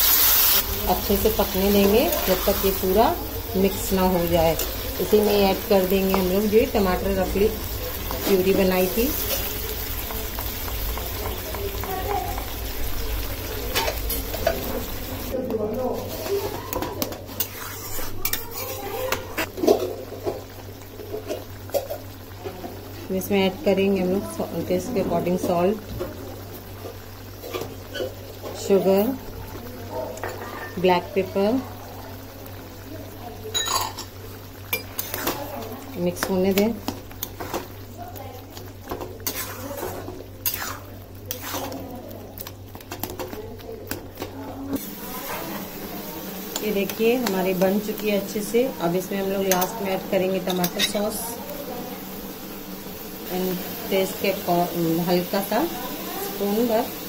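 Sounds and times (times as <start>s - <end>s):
spatula scraping a pan: 16.1s - 19.9s, 34.8s - 35.6s, 38.9s - 41.9s, 44.7s - 45.8s
spoon scraping pan: 16.1s - 19.9s, 34.8s - 37.8s, 38.9s - 43.4s, 44.2s - 51.3s
spatula stirring thick sauce: 16.2s - 19.2s, 38.5s - 43.6s.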